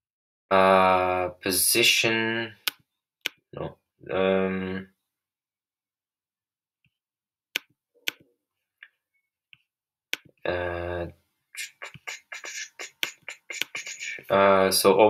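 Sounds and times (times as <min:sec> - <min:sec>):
man humming: 0:11.6 - 0:14.3.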